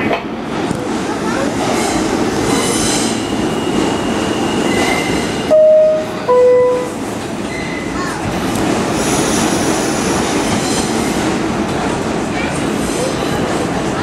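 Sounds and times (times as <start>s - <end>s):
subway wheels rumbling on track: 0.0s - 14.0s
train horn blasts: 5.5s - 7.0s.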